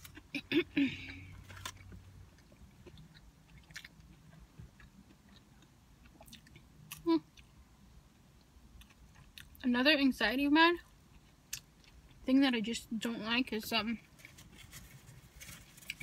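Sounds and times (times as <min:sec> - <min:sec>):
chewing french fries: 0:00.0 - 0:07.5, 0:08.4 - 0:09.6, 0:11.1 - 0:12.3, 0:15.6 - 0:16.0.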